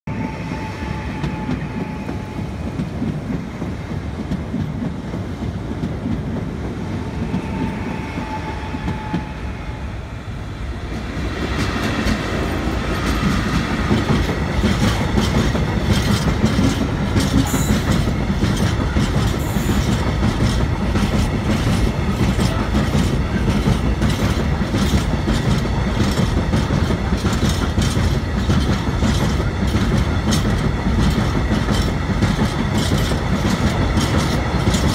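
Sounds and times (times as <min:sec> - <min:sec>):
freight train rumbling past: 0:00.0 - 0:34.9
wheels clicking over rail joints: 0:12.9 - 0:34.9.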